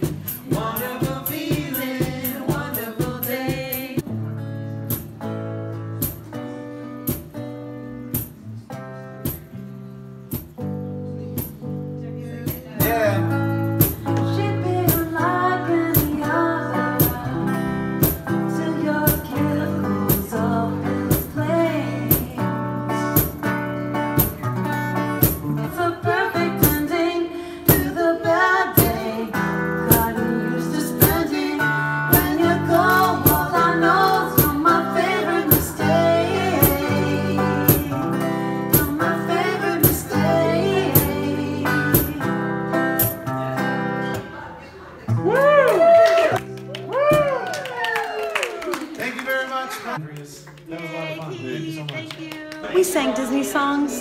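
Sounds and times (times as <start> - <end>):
woman singing: 0.0 - 4.0, 13.8 - 23.3, 25.6 - 43.2
acoustic guitar strumming: 0.0 - 44.5.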